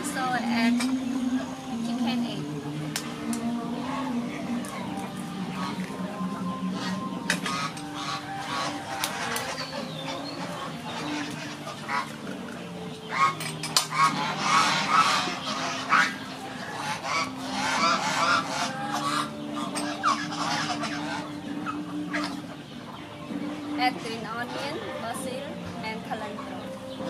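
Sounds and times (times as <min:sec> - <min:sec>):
steady low drone: 0:00.0 - 0:27.0
fowl honking: 0:03.3 - 0:27.0.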